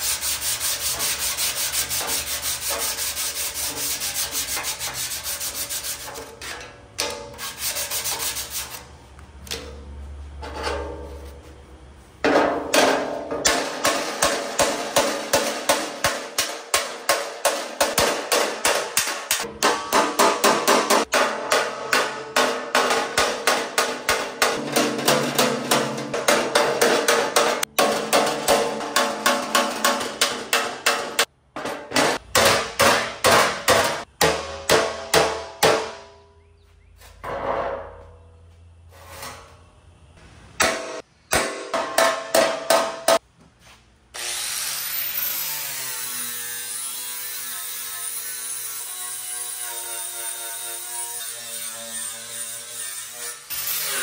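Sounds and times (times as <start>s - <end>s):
hammer striking metal: 12.2s - 36.2s, 40.6s - 43.2s.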